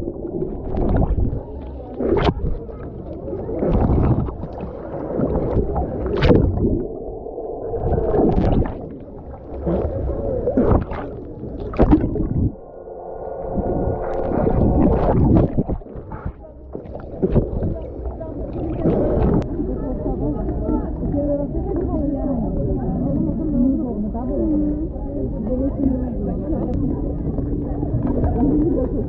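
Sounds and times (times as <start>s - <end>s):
sharp water splashes: 0.0s - 2.8s, 3.4s - 6.9s, 7.7s - 12.6s
exhaled air bubbles: 0.0s - 29.0s
muffled underwater rumble and gurgling: 0.0s - 29.0s.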